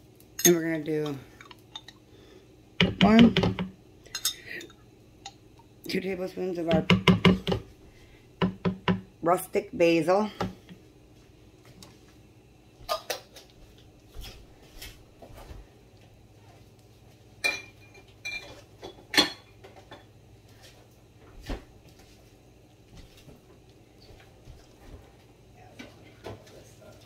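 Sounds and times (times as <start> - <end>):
dishes and utensils clinking: 0.4 - 2.0, 3.0 - 4.8, 17.4 - 20.1.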